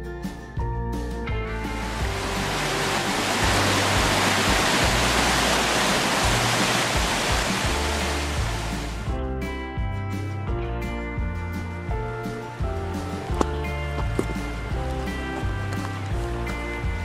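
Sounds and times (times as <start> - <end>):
background music with bass: 0.0 - 17.0
water rushing over rocks: 1.5 - 9.1.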